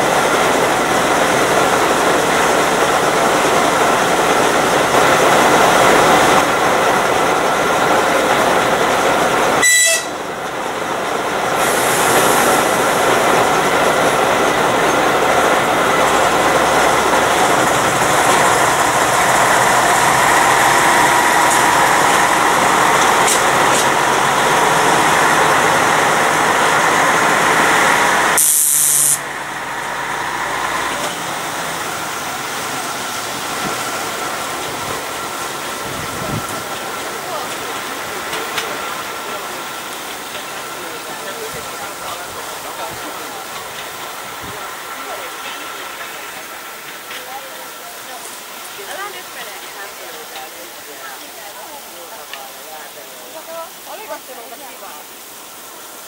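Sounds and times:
diesel locomotive running under load: 0.0s - 56.0s
wagons rolling on track: 11.6s - 28.3s, 29.4s - 54.8s.

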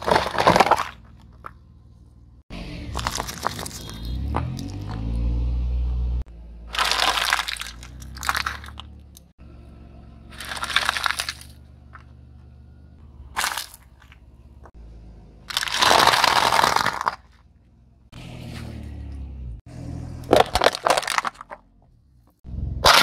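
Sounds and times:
foil tray crunching: 0.0s - 1.0s, 6.7s - 8.7s, 10.4s - 11.6s, 15.5s - 17.3s
car tyre crushing objects: 0.0s - 5.6s, 6.3s - 23.0s
plastic toy shells cracking: 10.4s - 11.6s.

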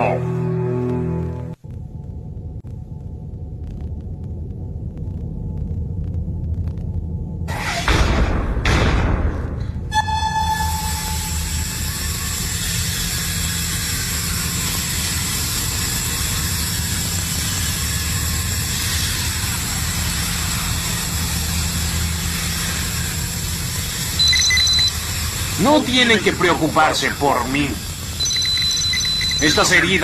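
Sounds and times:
sci-fi machine hum: 0.0s - 30.0s
high whine and hiss: 10.0s - 30.0s
short electronic beep: 24.2s - 25.0s, 28.2s - 30.0s.

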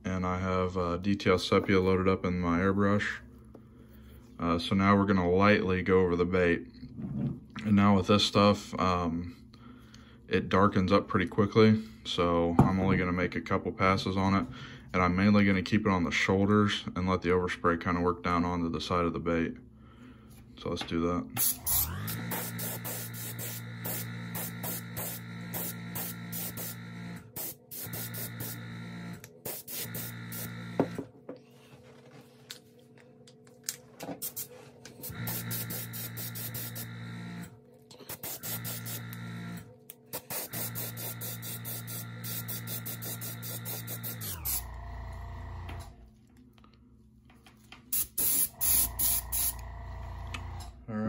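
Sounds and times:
airbrush compressor motor humming: 21.4s - 31.1s, 34.2s - 46.0s, 48.0s - 50.8s.

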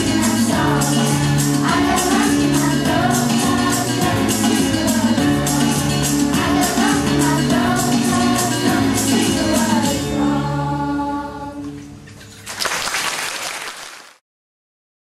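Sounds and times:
rhythmic clapping: 0.0s - 9.8s, 12.4s - 14.2s
children's choir singing: 0.0s - 11.8s
audience applause: 12.4s - 14.2s.

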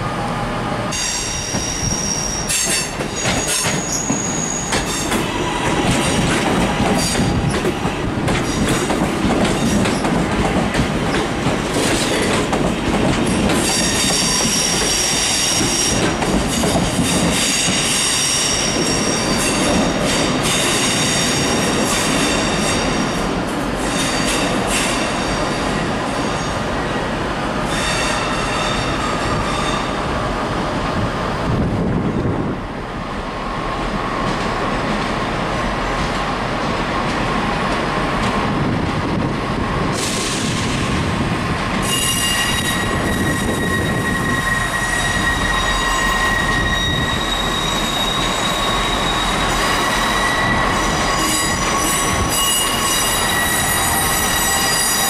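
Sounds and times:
train wheels squealing on rails: 0.0s - 12.6s, 13.2s - 30.2s, 39.8s - 55.0s
wheels clattering on rail joints: 2.5s - 18.0s.

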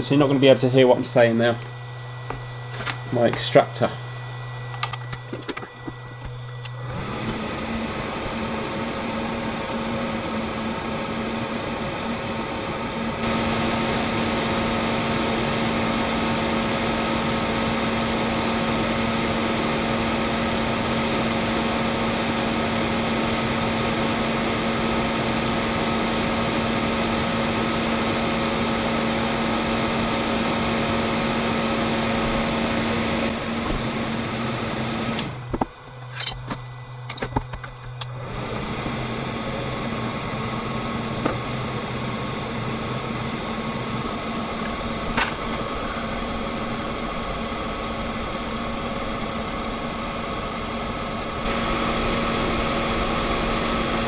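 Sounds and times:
extractor fan humming: 0.0s - 54.0s.

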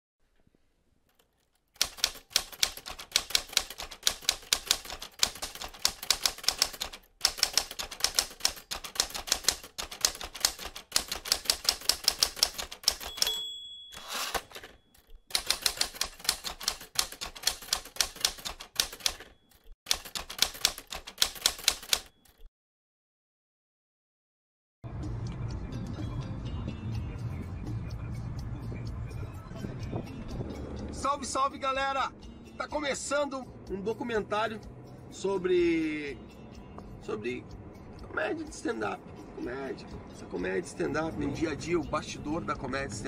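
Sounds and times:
typewriter keys clacking: 1.1s - 22.5s
typewriter carriage return sweep: 1.2s - 22.5s
typewriter margin bell ding: 12.2s - 17.3s, 18.2s - 20.2s, 21.1s - 22.5s.

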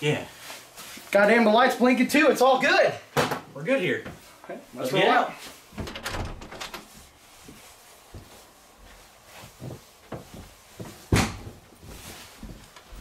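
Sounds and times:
wooden door opening: 5.7s - 6.9s
sharp thud: 11.1s - 11.4s.

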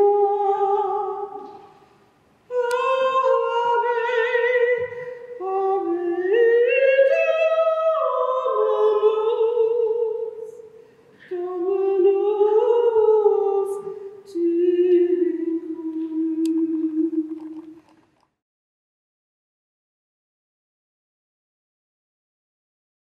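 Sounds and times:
woman singing unaccompanied: 0.0s - 1.7s, 2.5s - 10.6s, 11.2s - 17.8s.

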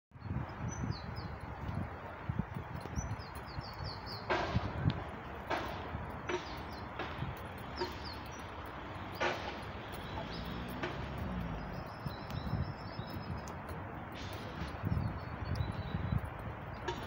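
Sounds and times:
low rumble on microphone: 0.2s - 17.0s
footsteps on concrete: 1.4s - 17.0s
bird chirps: 2.8s - 4.5s, 5.5s - 17.0s.

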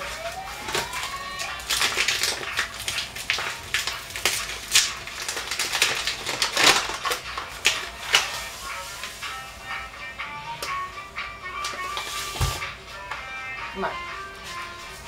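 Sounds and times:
plastic bag crinkling: 0.0s - 9.2s.

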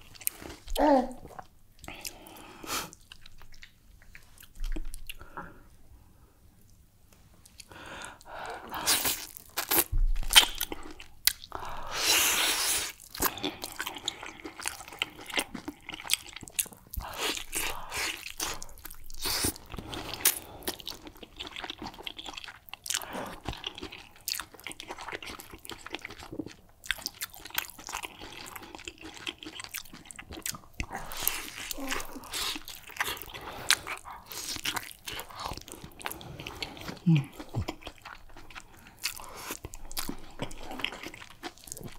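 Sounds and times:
wet chewing with lip smacks: 2.9s - 5.3s, 12.8s - 41.9s.

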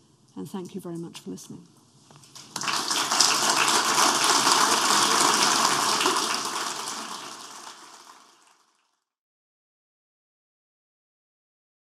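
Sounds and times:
audience applauding: 2.3s - 8.9s.

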